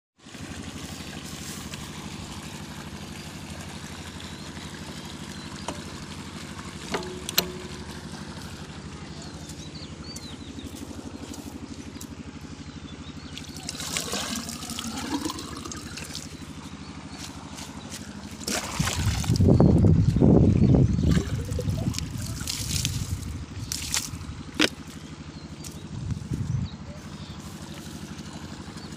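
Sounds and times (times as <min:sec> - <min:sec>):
water splashing into barrel: 0:00.2 - 0:09.7, 0:13.3 - 0:16.6, 0:18.3 - 0:19.6, 0:20.8 - 0:24.9
diesel engine running: 0:00.2 - 0:28.9.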